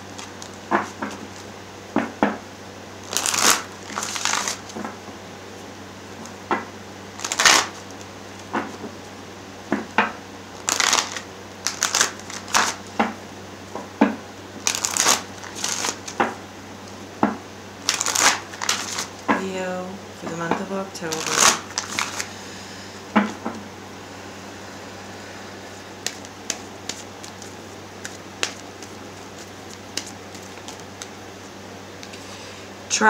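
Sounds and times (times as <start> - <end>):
cards being shuffled: 0.0 - 1.5, 3.0 - 4.9, 7.2 - 8.8, 10.6 - 12.9, 14.6 - 16.3, 17.8 - 19.4, 21.0 - 22.3, 26.0 - 31.5.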